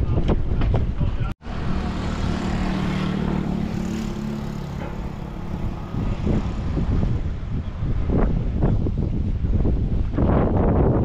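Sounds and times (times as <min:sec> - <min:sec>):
wind buffeting microphone: 0:00.0 - 0:11.0
engine humming: 0:01.4 - 0:08.4.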